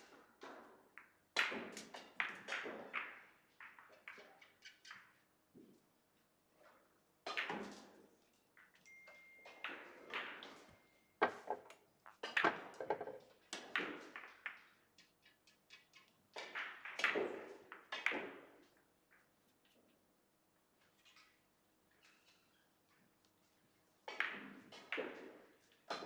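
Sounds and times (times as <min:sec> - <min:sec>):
billiard balls clacking: 0:09.6 - 0:18.5.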